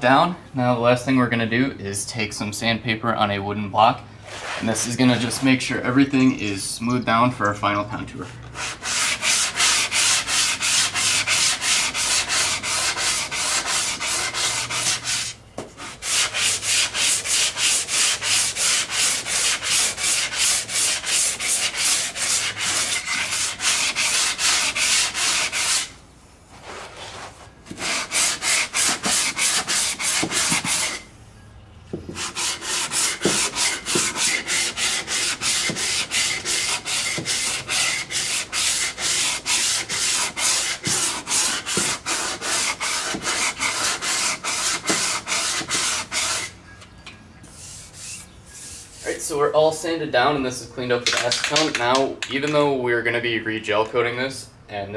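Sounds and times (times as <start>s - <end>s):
sandpaper rubbing back and forth: 4.2s - 5.7s, 8.6s - 26.0s, 26.6s - 31.1s, 32.1s - 46.6s, 47.5s - 49.4s.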